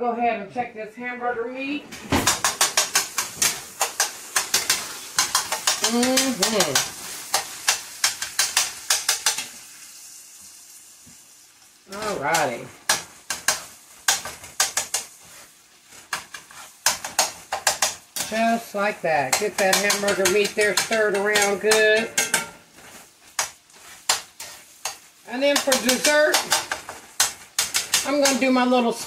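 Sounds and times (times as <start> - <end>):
meat sizzling: 1.9 - 29.0
metal spoon scraping skillet: 2.2 - 9.5, 12.0 - 29.0.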